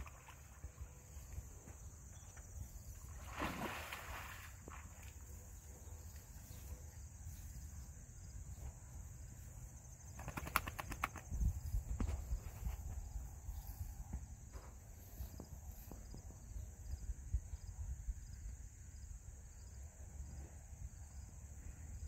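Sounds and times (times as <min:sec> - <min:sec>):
wind rumble on microphone: 0:11.1 - 0:14.4, 0:15.2 - 0:19.5.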